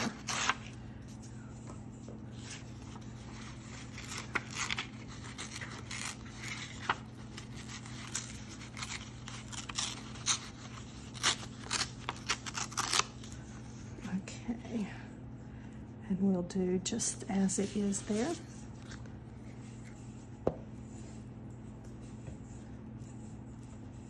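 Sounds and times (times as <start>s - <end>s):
paper tearing: 0.0s - 0.8s, 2.4s - 13.5s
paper crinkling: 0.0s - 13.8s.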